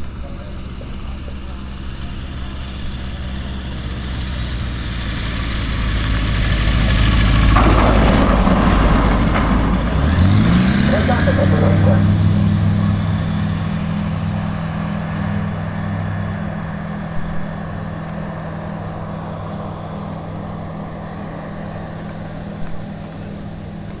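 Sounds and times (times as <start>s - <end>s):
propeller plane engine droning: 0.0s - 24.0s.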